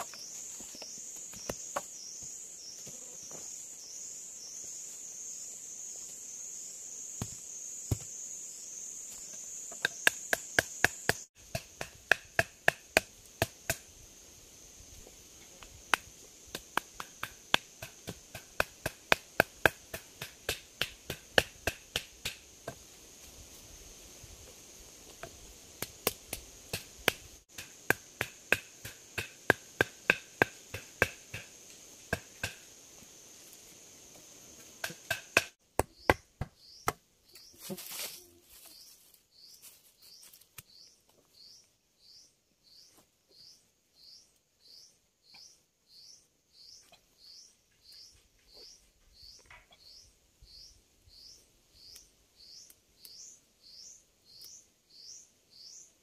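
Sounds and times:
insects buzzing: 0.0s - 56.0s
wooden stake being hammered: 9.7s - 13.9s, 15.9s - 22.8s, 25.8s - 31.5s, 32.1s - 32.6s, 34.8s - 37.0s.

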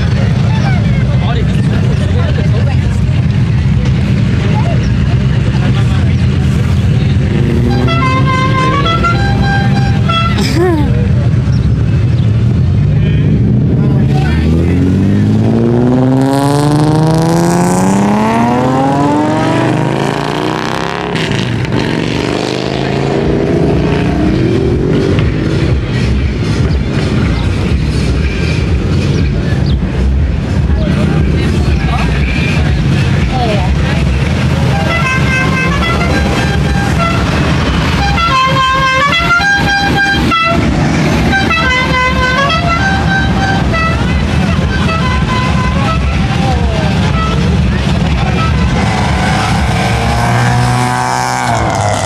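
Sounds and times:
car engine accelerating: 0.0s - 52.0s
traffic noise: 0.0s - 52.0s
musical vehicle horn: 7.3s - 10.4s, 34.6s - 52.0s.

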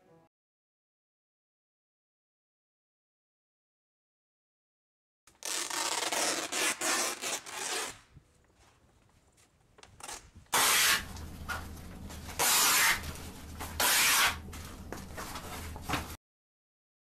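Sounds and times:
shredder cutting paper: 10.6s - 11.1s, 12.4s - 13.0s.

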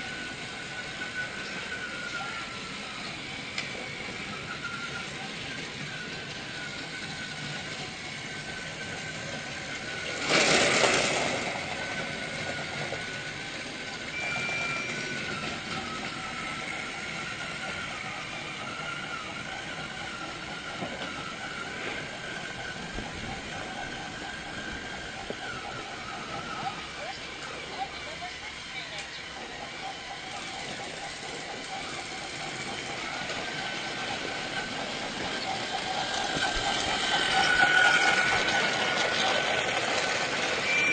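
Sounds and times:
small motor whining: 0.0s - 40.9s
brief high tone: 14.1s - 15.4s, 40.6s - 40.9s.

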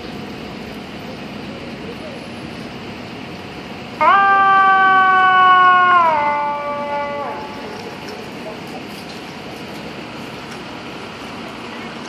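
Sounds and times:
city street traffic noise: 0.0s - 12.0s
fire engine air horn blast: 4.0s - 8.1s.

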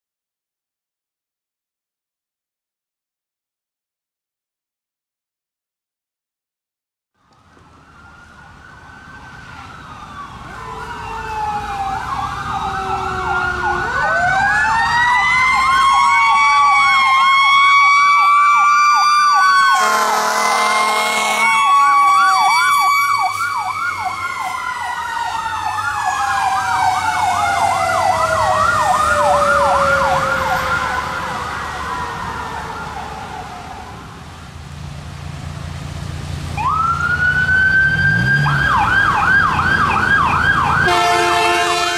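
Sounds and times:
ambulance siren: 7.2s - 34.5s, 36.5s - 41.9s
electronic yelp siren: 7.8s - 34.1s, 36.6s - 41.9s
air horn blasts: 19.7s - 21.9s, 40.8s - 41.9s.

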